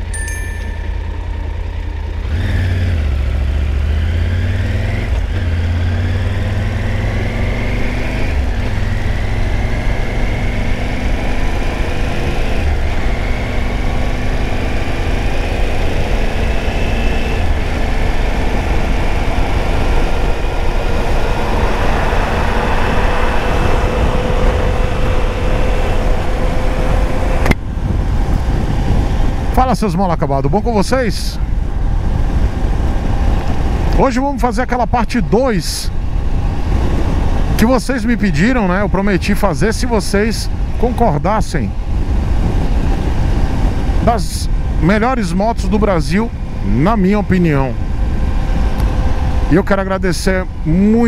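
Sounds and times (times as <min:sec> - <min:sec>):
motorcycle engine accelerating: 0:00.0 - 0:51.0
wind rush: 0:17.4 - 0:46.7.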